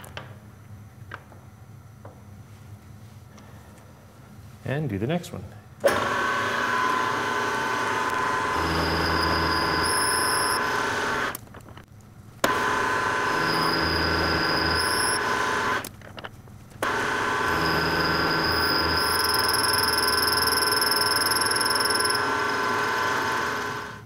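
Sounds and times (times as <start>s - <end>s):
milling machine whine: 5.8s - 11.4s, 12.4s - 15.9s, 16.8s - 24.0s.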